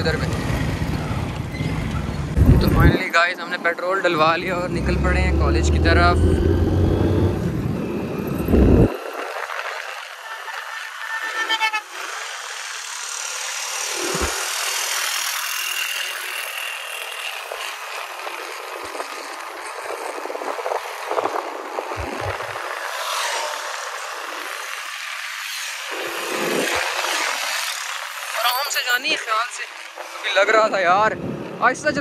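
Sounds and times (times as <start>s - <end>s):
traffic noise: 0.0s - 32.0s
wind rushing: 2.2s - 3.4s, 4.1s - 10.0s, 19.8s - 24.4s
small motorcycle engine buzzing: 11.8s - 28.4s.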